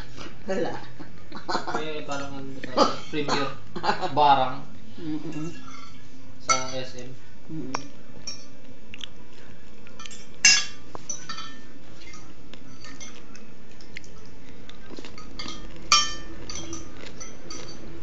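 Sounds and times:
cutlery and dishes clinking: 10.0 - 14.3, 14.9 - 18.0.

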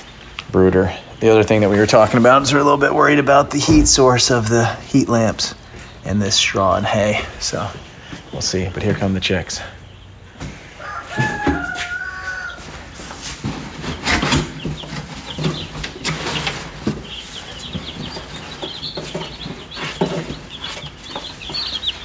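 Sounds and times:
chicks peeping: 0.0 - 22.0
knocks and rustling: 12.8 - 22.0.

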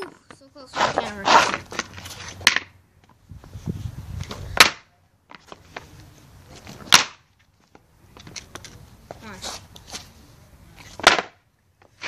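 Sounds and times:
skateboard wheels rolling on concrete: 0.0 - 12.0
skateboard deck clacking: 10.8 - 12.0.

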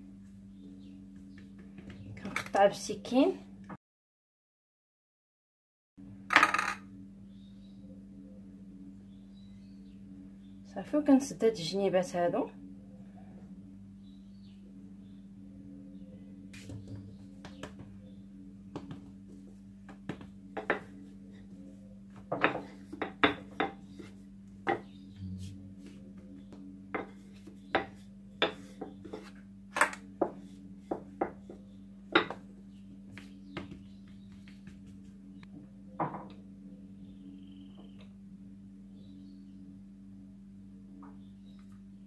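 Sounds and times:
low hum: 6.0 - 42.0
rolling pin knocking on worktop: 19.9 - 20.9, 32.2 - 32.4.

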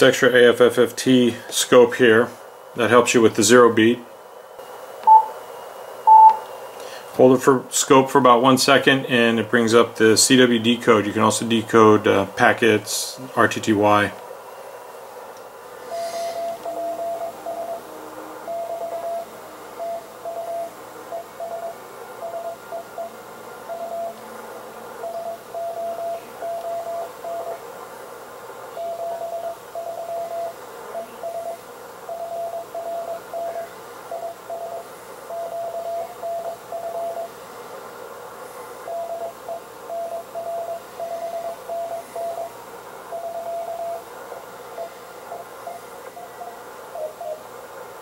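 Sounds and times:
radio band hiss: 0.0 - 48.0
morse code beeps: 5.0 - 5.4, 6.0 - 6.4, 15.9 - 24.2, 25.0 - 27.6, 28.8 - 37.4, 38.9 - 44.1, 44.7 - 47.5.

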